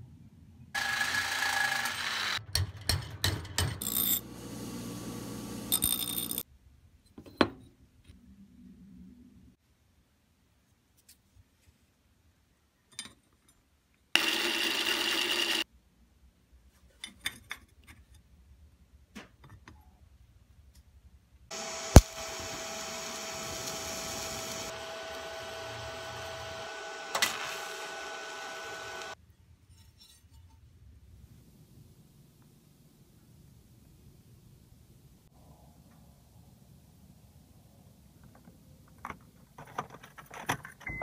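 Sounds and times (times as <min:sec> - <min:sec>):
welding arc hissing and buzzing: 0:03.8 - 0:06.4, 0:21.5 - 0:29.2
welding arc cracking: 0:21.6 - 0:24.7.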